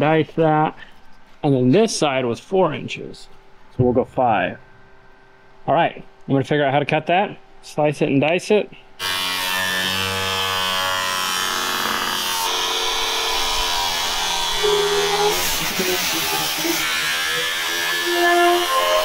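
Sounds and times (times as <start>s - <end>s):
angle grinder cutting sheet steel: 9.0s - 19.0s.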